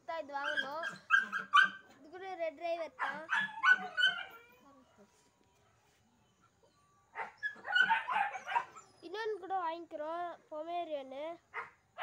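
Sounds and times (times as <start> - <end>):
dog barking: 0.5 - 1.8, 3.0 - 4.4, 7.2 - 8.8, 11.6 - 11.8.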